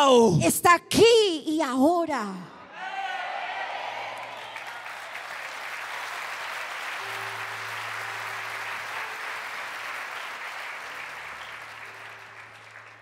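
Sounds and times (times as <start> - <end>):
congregation applauding: 3.0 - 13.0.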